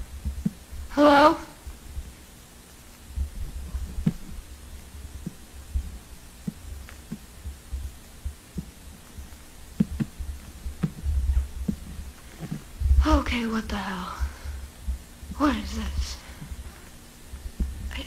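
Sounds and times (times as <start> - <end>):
low rumble: 0.0 - 18.0
footsteps: 2.8 - 13.4.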